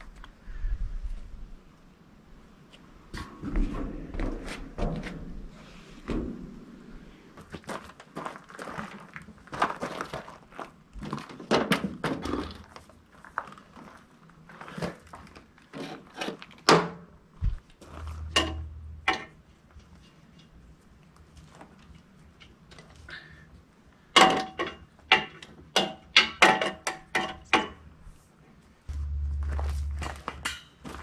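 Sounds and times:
ringing metal clanks: 18.0s - 19.3s.

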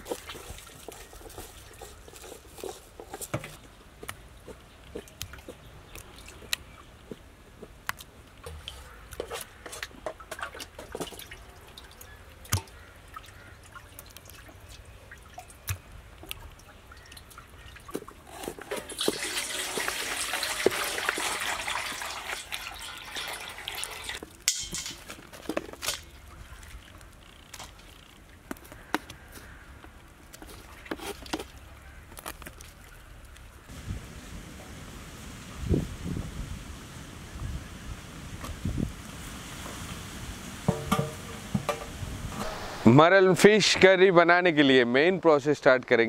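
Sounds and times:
water dripping and splashing: 0.0s - 35.4s
rushing water: 10.2s - 24.2s
taps on metal plate: 40.7s - 41.9s.

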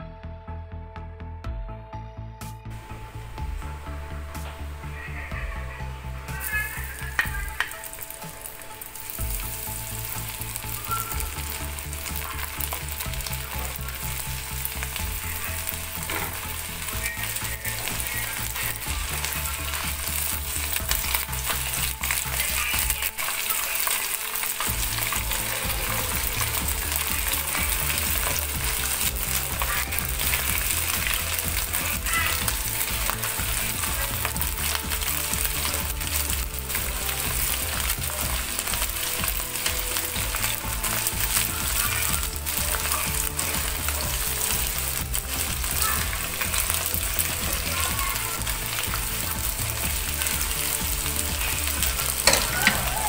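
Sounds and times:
chicken deep-frying in oil: 4.9s - 53.0s
tongs clicking on pan: 6.8s - 9.2s, 52.0s - 53.0s.

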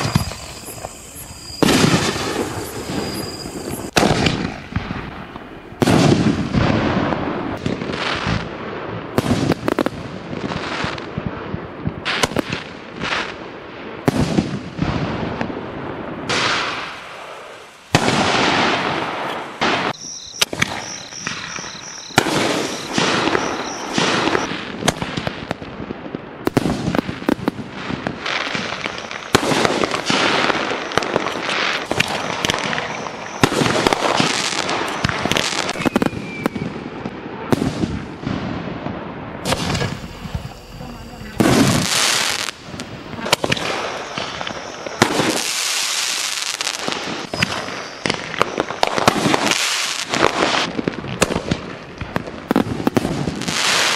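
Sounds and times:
firework shells bursting: 0.0s - 6.8s, 17.9s - 25.3s, 28.6s - 36.7s, 39.4s - 53.9s.

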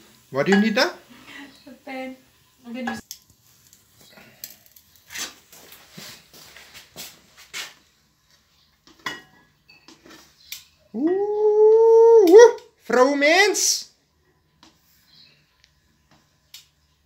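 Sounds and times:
utensil scraping: 4.8s - 6.3s.

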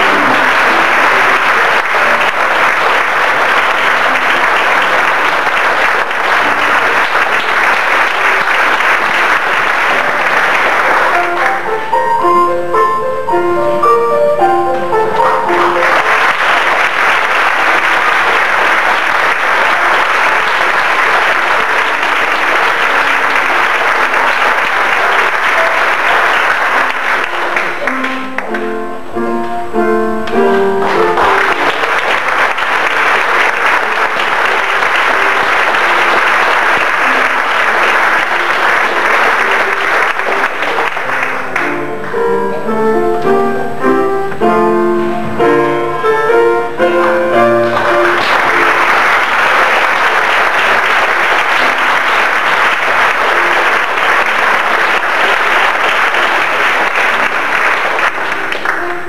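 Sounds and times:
audience clapping: 0.0s - 12.0s, 15.1s - 28.7s, 30.2s - 42.2s, 46.8s - 59.0s
instrumental tune: 6.2s - 16.9s, 19.6s - 49.2s.

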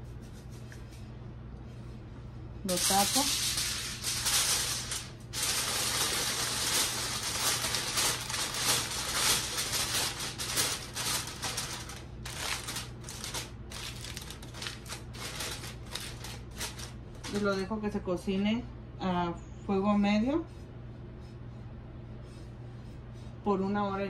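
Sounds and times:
aluminium foil crinkling: 2.6s - 17.7s.

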